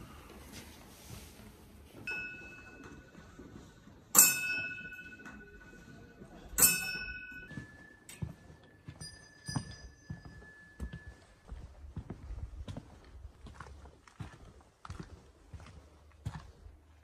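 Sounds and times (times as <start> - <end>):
small metal bell ringing: 2.1 - 3.4, 4.2 - 11.4
higher-pitched bell ringing: 2.1 - 3.6, 4.2 - 11.4.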